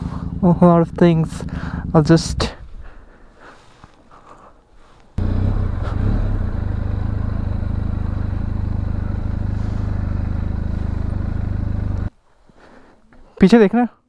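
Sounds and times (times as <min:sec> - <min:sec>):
motorcycle engine idling: 0:00.0 - 0:03.1, 0:05.2 - 0:12.1.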